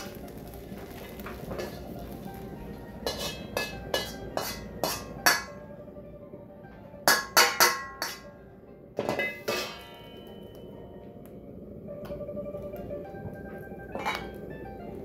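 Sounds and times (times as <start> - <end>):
background music: 0.0 - 15.0
ladle clanking against wok: 3.0 - 5.6, 7.0 - 8.4, 9.0 - 10.2.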